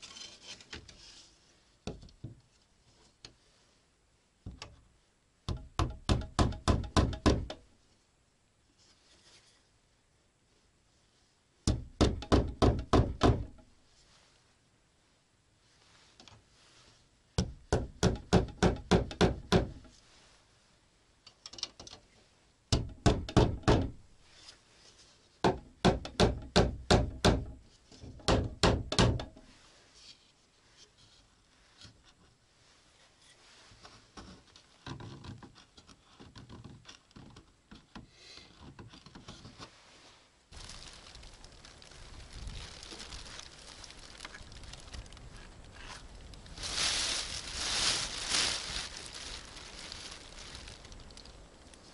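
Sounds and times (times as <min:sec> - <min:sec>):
hammer tapping on wood: 0:05.5 - 0:07.6
faint rustling: 0:07.8 - 0:11.5, 0:13.5 - 0:17.3, 0:24.1 - 0:25.4, 0:29.4 - 0:36.2, 0:39.2 - 0:51.9.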